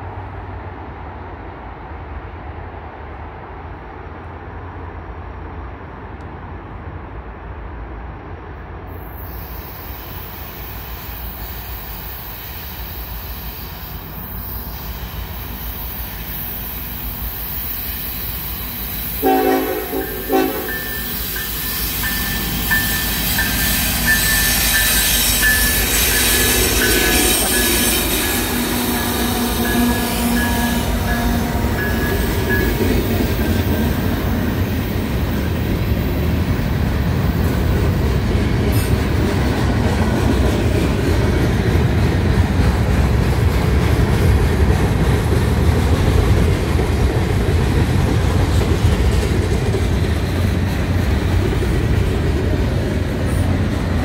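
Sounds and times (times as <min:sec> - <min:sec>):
freight train rumble: 0:00.0 - 0:54.0
locomotive horn blasts: 0:19.2 - 0:21.2, 0:26.5 - 0:32.6
high wheel squeal: 0:20.0 - 0:33.0.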